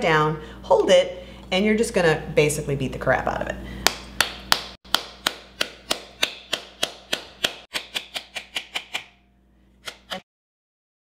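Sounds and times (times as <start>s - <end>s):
wooden spoon whacking pomegranate: 4.3s - 9.0s.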